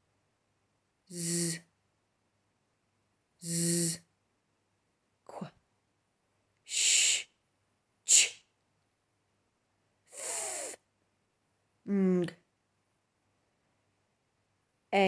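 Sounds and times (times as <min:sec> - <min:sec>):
person saying letter sounds: 0:01.1 - 0:01.7, 0:03.4 - 0:04.1, 0:10.2 - 0:10.8, 0:11.8 - 0:12.5.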